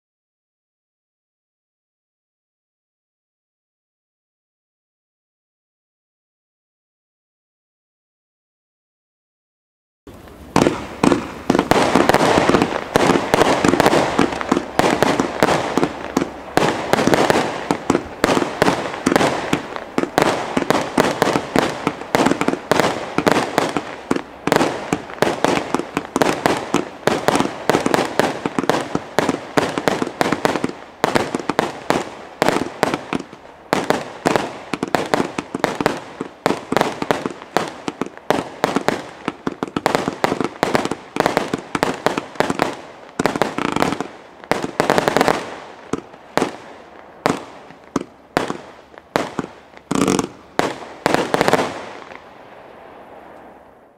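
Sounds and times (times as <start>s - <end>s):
fireworks launch thumps and bursts: 10.1s - 46.6s, 47.2s - 52.2s.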